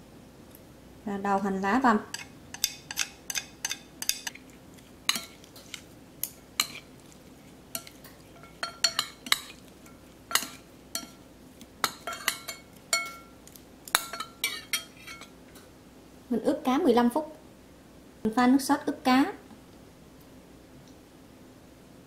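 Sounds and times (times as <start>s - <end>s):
metal spoon clinking on ceramic bowl: 2.1s - 4.4s, 5.1s - 5.4s, 6.6s - 6.9s, 7.7s - 11.2s, 11.8s - 13.4s, 14.0s - 15.3s.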